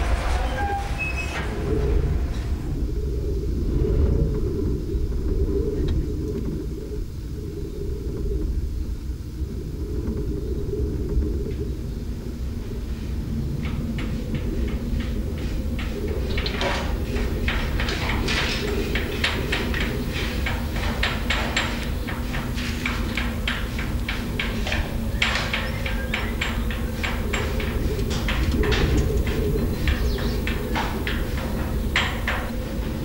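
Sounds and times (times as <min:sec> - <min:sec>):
metallic squeaks and clanks: 0:00.0 - 0:02.8
low machinery rumble: 0:00.0 - 0:33.0.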